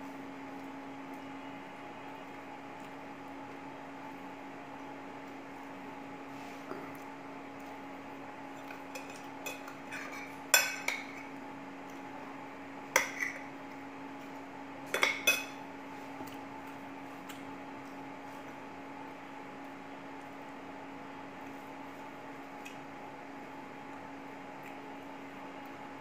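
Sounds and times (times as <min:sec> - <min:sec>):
low machine hum: 0:00.0 - 0:26.0
metal spoon clinking on plates: 0:08.9 - 0:11.3, 0:12.9 - 0:13.4, 0:14.9 - 0:15.6.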